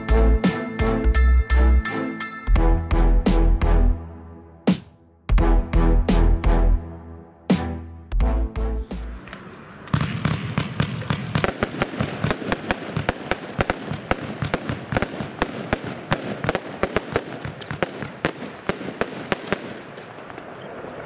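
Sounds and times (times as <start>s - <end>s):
firework crackling hiss: 9.0s - 21.0s
firework sharp cracks: 9.1s - 21.0s.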